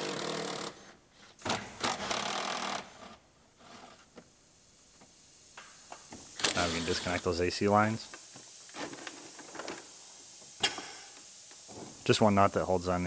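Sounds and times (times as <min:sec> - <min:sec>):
cordless power driver running: 0:06.4 - 0:07.4.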